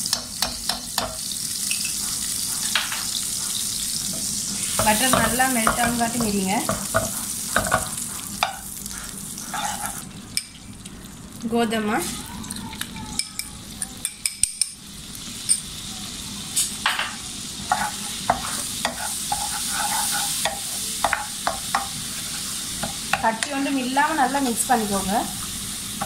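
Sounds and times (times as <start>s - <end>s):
utensils knocking against a pan: 0.0s - 2.0s, 2.6s - 3.1s, 4.8s - 8.6s, 20.4s - 22.0s
butter sizzling in a wok: 0.0s - 26.0s
spatula scraping a pan: 4.6s - 10.1s, 17.6s - 23.2s.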